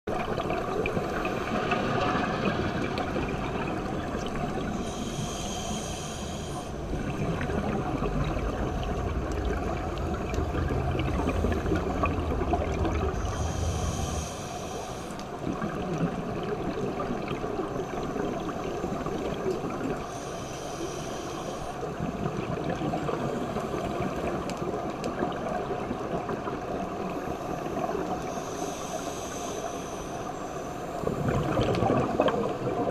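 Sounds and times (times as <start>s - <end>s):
steady water hiss: 0.1s - 32.9s
regulator hissing on inhalation: 4.8s - 6.7s, 13.3s - 15.2s
bubbles gurgling: 6.8s - 14.4s, 31.0s - 32.9s.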